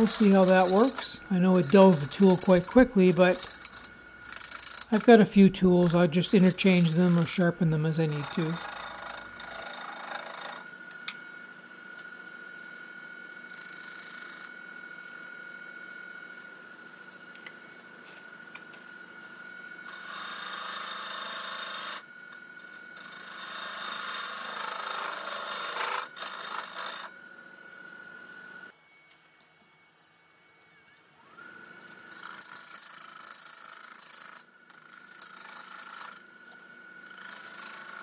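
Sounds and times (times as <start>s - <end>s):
gouge hissing cutting wood: 0.0s - 10.6s
wood lathe whine: 0.0s - 38.0s.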